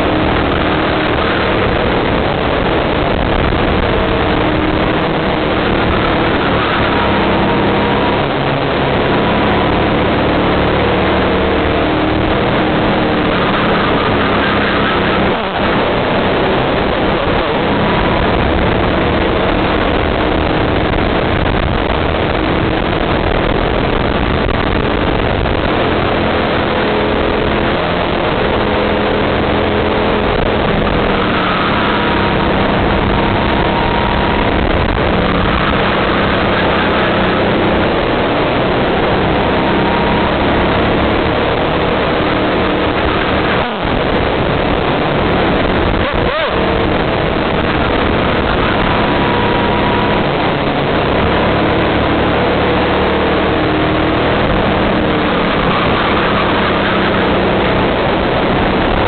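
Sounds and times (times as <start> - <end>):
kart engine at full throttle: 0.0 - 59.0.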